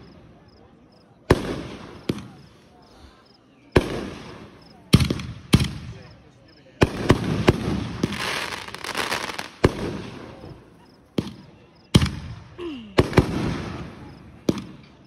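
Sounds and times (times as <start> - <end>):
fireworks bangs: 1.2 - 2.9, 3.7 - 6.2, 6.8 - 15.0
fireworks crackling: 1.3 - 2.8, 3.7 - 6.2, 6.8 - 15.0.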